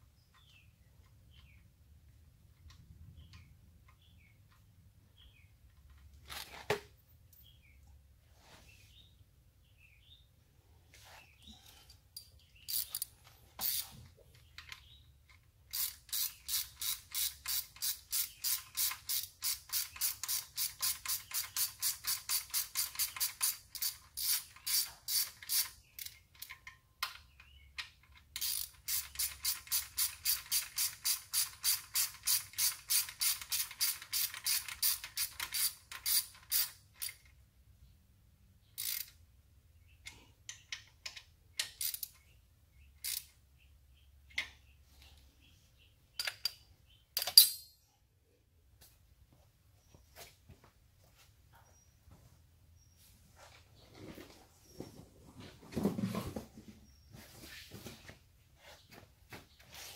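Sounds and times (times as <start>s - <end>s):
ratchet wrench clicking: 12.7s - 13.9s, 15.7s - 26.7s, 28.2s - 37.3s, 38.8s - 39.2s, 40.7s - 42.2s, 43.0s - 43.4s.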